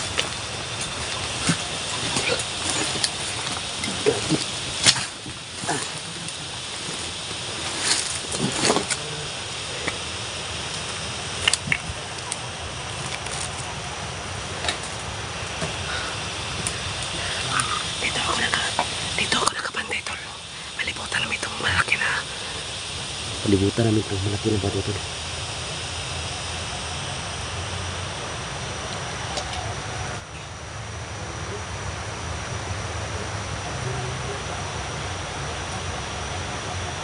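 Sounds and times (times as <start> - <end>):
footsteps through undergrowth: 0.0 - 9.7, 11.9 - 13.8, 14.4 - 19.3
steady background hiss: 0.0 - 37.0.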